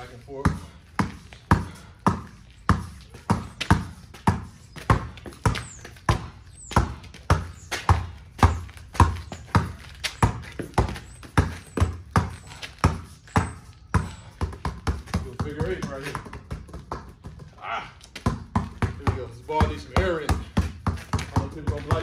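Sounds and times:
basketball dribbled on concrete: 0.0s - 22.0s.

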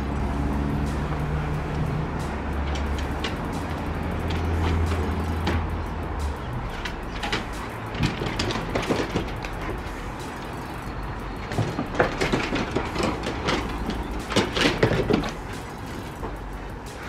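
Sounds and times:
dogs scuffling on wooden deck: 6.7s - 10.7s, 11.4s - 16.4s.

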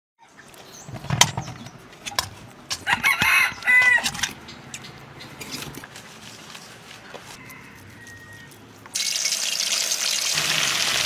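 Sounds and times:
rooster crowing: 2.8s - 4.1s, 7.0s - 8.6s.

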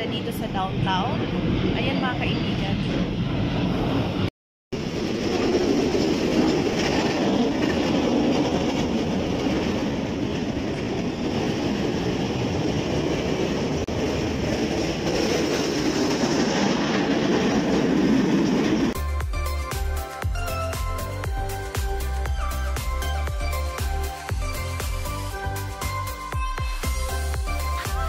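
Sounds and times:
steel blade scraping road: 4.8s - 10.5s.

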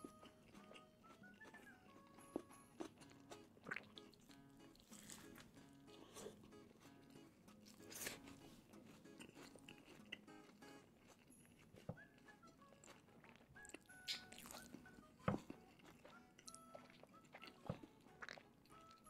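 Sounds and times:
faint soft background music: 0.0s - 19.0s
quiet chewing: 0.0s - 19.0s.

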